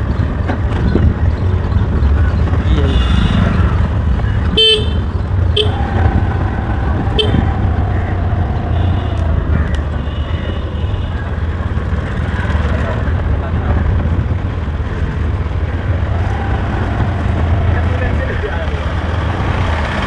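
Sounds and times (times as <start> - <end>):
wind and road noise: 0.0 - 20.0
vehicle horn beeps: 2.8 - 3.6.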